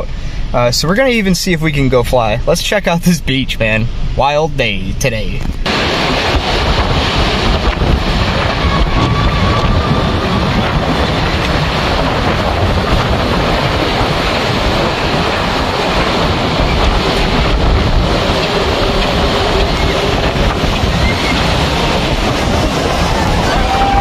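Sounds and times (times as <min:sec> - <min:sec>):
wind buffeting microphone: 0:05.2 - 0:24.0.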